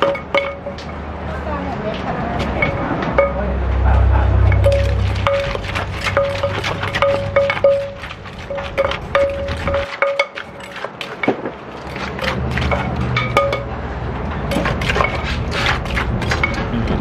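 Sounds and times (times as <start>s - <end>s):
pestle knocking in mortar: 0.0s - 1.0s, 4.5s - 13.7s, 14.5s - 17.0s.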